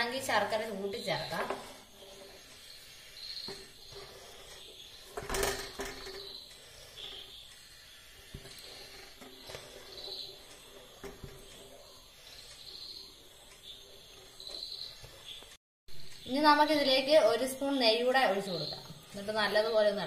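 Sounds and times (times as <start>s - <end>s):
spatula scraping metal pot: 0.2s - 15.0s.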